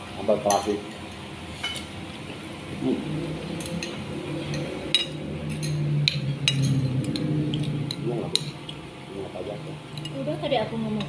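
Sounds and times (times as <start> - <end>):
low voice humming: 2.7 - 3.5
clinks against ceramic plates: 3.6 - 8.8.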